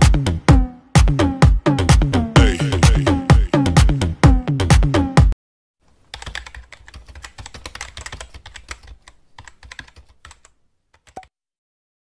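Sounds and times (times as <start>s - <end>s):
dance music: 0.0s - 5.3s
keyboard typing: 5.9s - 11.3s.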